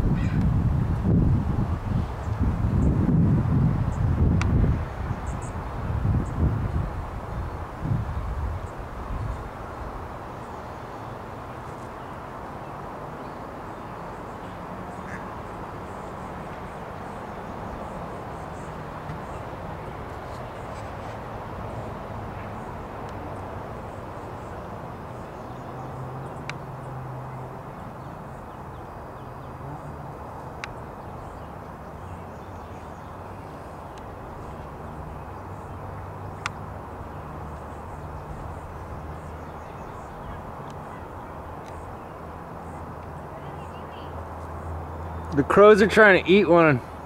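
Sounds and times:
crows cawing: 0.2 - 0.4, 15.0 - 15.3.

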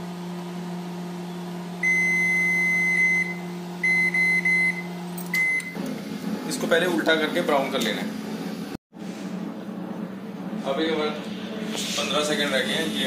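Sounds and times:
microwave humming: 0.0 - 13.0
microwave keypad beeping: 1.8 - 5.8.

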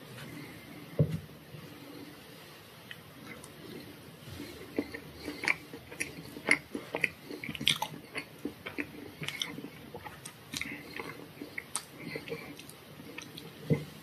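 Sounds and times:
chewing and crunching: 2.9 - 13.9.

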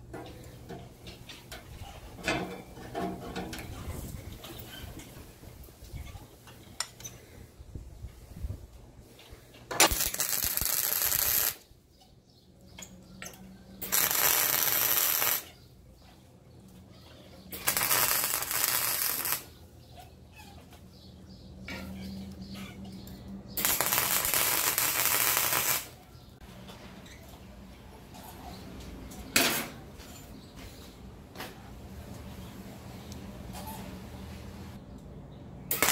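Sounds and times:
arc welding crackle: 9.8 - 11.6, 13.8 - 15.6, 17.5 - 19.6, 23.6 - 26.0, 35.7 - 35.9.

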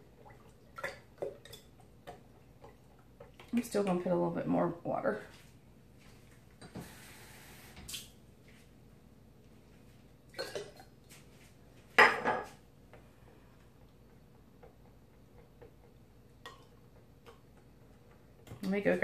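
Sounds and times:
dishes and utensils clattering: 12.0 - 12.6.

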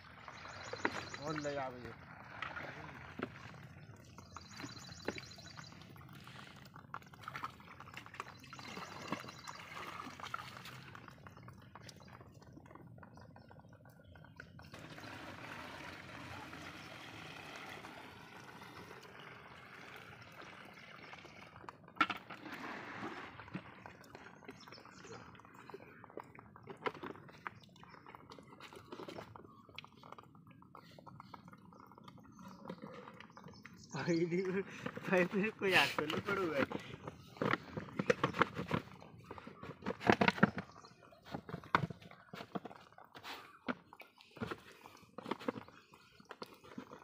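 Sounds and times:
water splashing from a bucket: 0.0 - 12.7, 14.3 - 47.0
water pouring into a hose: 0.0 - 12.8, 13.9 - 30.3.

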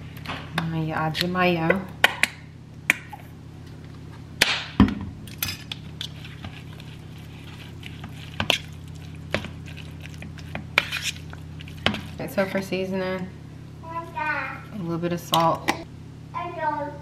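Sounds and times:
fork stirring and clinking bowl: 5.3 - 12.7.

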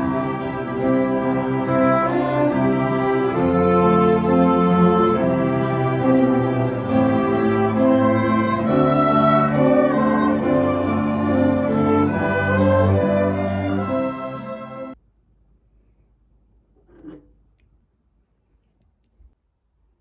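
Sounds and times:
string ensemble playing: 0.0 - 15.0.

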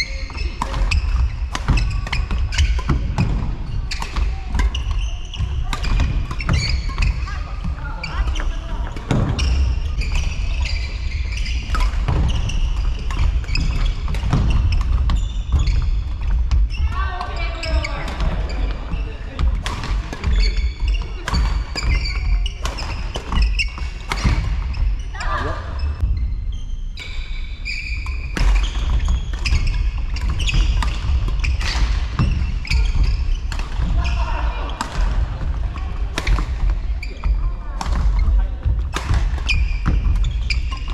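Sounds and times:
rackets hitting shuttlecock: 0.0 - 16.6, 17.2 - 24.8, 28.0 - 40.9
low rumble of sports hall: 0.0 - 40.9
shoes squeaking on court: 0.0 - 40.9
rackets striking shuttlecock: 0.5 - 7.3.

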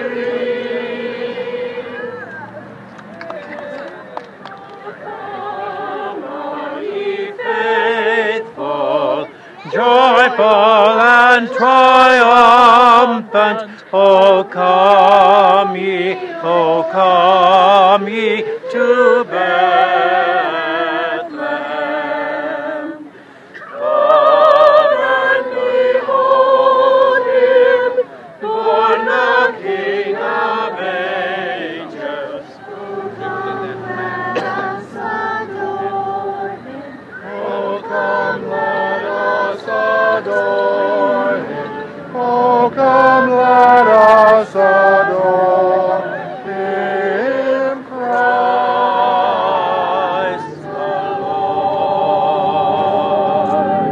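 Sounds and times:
crowd singing a carol: 0.0 - 53.9.

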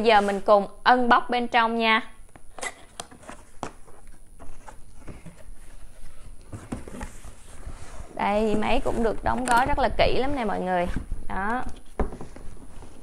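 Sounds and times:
cardboard box being handled: 3.2 - 11.1.

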